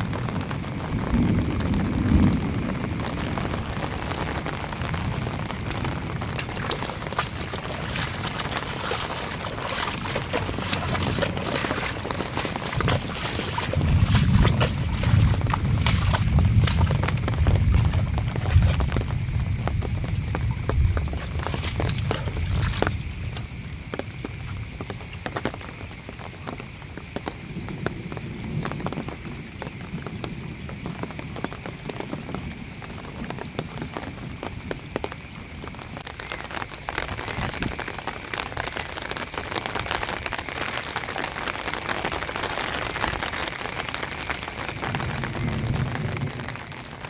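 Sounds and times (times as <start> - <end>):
heavy rain falling: 0.0 - 47.0.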